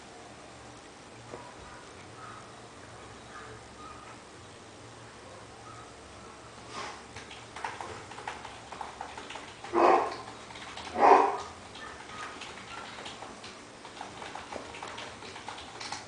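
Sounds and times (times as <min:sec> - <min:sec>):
dog barking: 0:09.7 - 0:10.2, 0:10.9 - 0:13.0.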